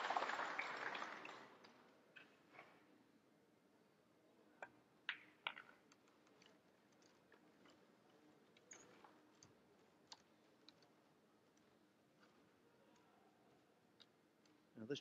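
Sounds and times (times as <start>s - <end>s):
pool balls clicking: 4.6s - 7.2s.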